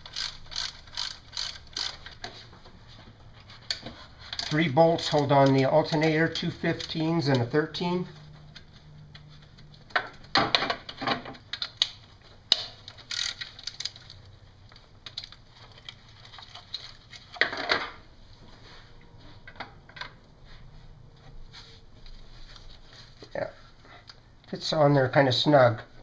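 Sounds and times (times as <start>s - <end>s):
ratcheting wrench rasps: 0.0s - 2.2s, 4.3s - 7.0s, 12.5s - 14.2s.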